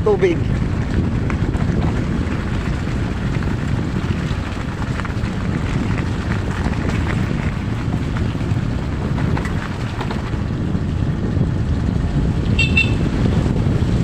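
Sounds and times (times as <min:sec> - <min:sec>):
small motorcycle running: 0:00.0 - 0:14.0
wind buffeting microphone: 0:00.0 - 0:14.0.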